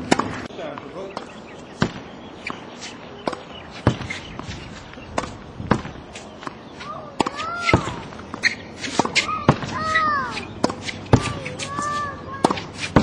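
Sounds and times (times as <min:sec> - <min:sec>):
racket striking tennis ball: 0:00.0 - 0:13.0
ball hitting wall and bouncing: 0:07.2 - 0:13.0.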